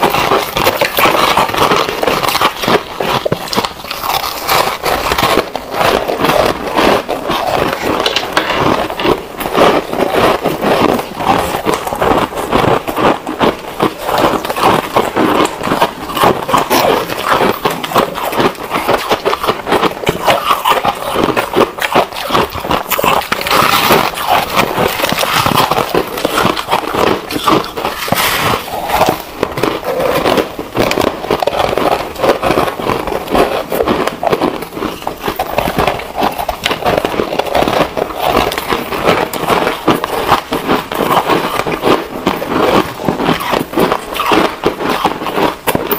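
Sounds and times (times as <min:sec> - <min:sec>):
ice being chewed crunching: 0:00.0 - 0:45.9.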